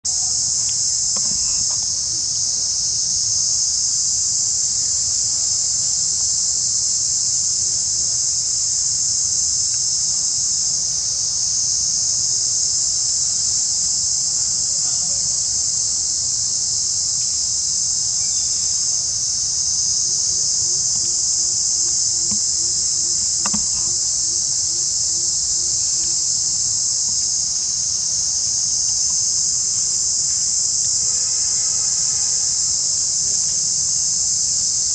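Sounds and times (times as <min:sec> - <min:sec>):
insects droning: 0:00.0 - 0:34.9
sharp click: 0:23.4 - 0:24.0.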